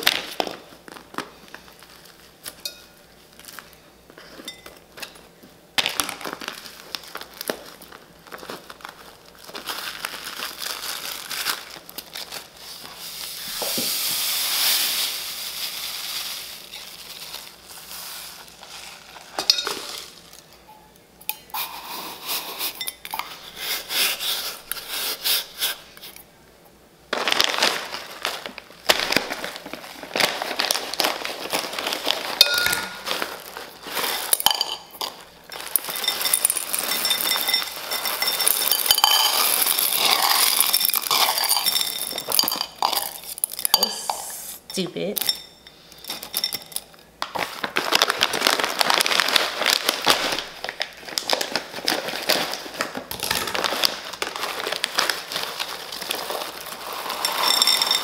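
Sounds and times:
metal bowl clinking in planter: 32.4 - 33.1, 34.4 - 45.7, 57.1 - 58.0.

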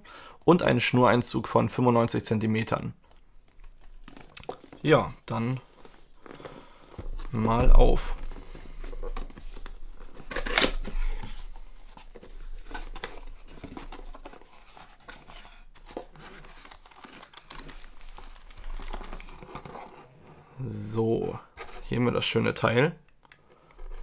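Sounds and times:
paper rustling and crinkling: 3.4 - 20.6, 23.5 - 24.0.

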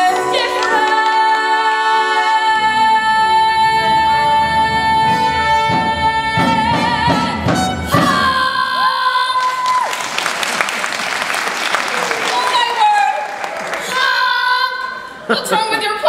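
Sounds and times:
musical accompaniment: 0.0 - 8.6.

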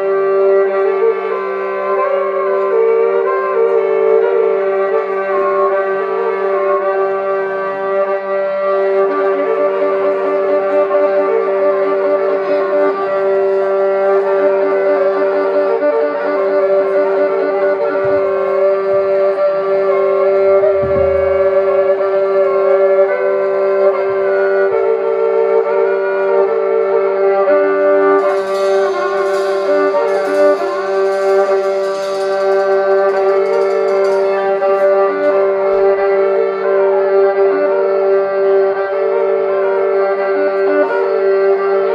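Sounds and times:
violin drone notes: 0.0 - 41.9
steady held tones: 15.4 - 23.3, 28.0 - 36.8
cymbals shimmering: 28.2 - 36.0.

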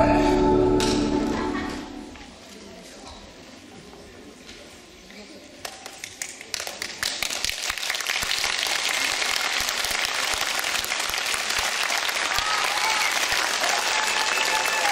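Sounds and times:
audience applause: 6.5 - 14.9.

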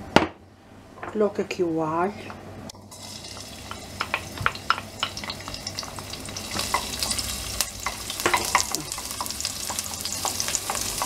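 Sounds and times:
garlic sizzling in oil: 2.7 - 11.0.

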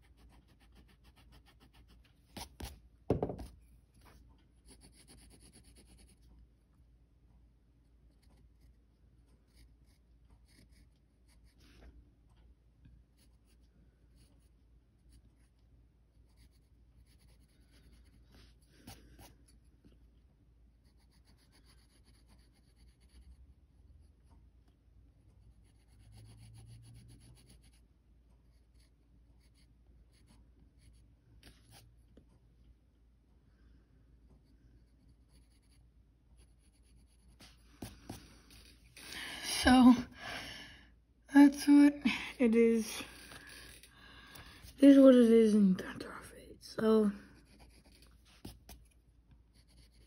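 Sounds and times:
pencil scratching on paper: 0.0 - 6.4, 7.8 - 11.8, 13.1 - 19.8, 20.7 - 24.3, 25.5 - 32.0, 34.4 - 39.1, 42.5 - 43.9, 47.2 - 50.0.

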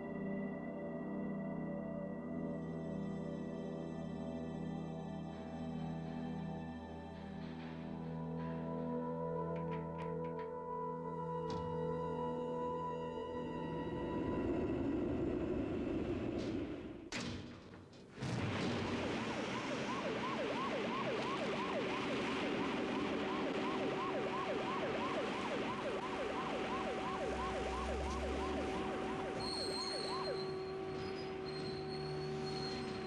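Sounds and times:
music: 0.0 - 15.8, 22.3 - 33.0
alarm siren sweeping: 19.1 - 33.0.

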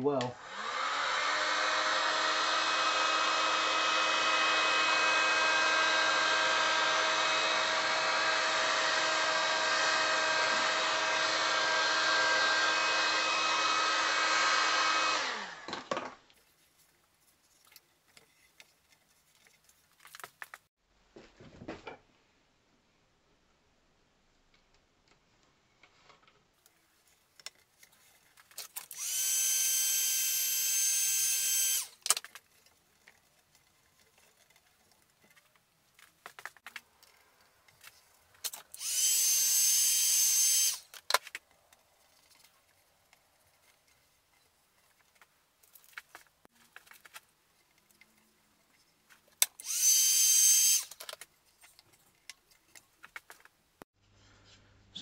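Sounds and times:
heat gun fan whine: 0.4 - 15.7, 28.9 - 32.0, 38.8 - 40.9, 49.6 - 50.9.

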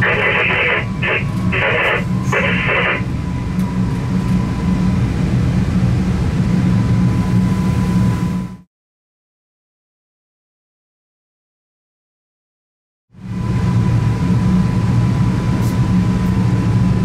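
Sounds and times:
train cab low hum: 0.0 - 8.6, 13.2 - 17.0.

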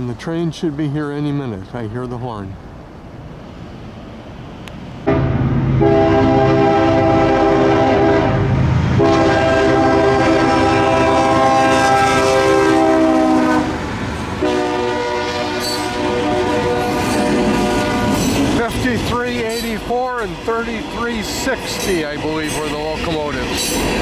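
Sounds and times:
locomotive engine rumble: 0.0 - 24.0
train horn blasts: 5.1 - 13.8, 14.4 - 18.4.

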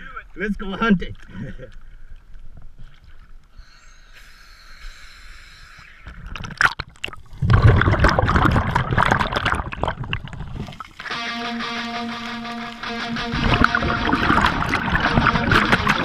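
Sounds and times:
underwater rush and bubbling: 6.0 - 11.2, 12.5 - 16.0
water splashing: 6.0 - 16.0
water lapping: 12.3 - 16.0.

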